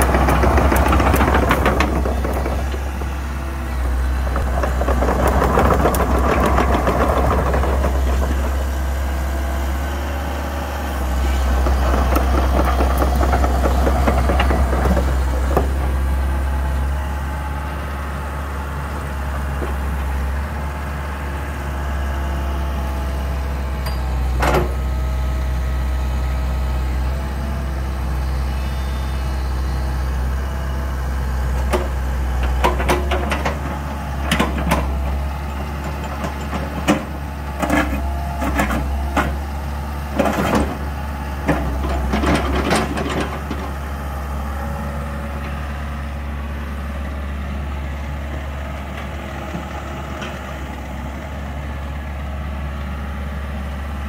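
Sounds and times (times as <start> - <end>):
hydraulics working: 0.0 - 21.1
excavator diesel engine running: 0.0 - 54.0.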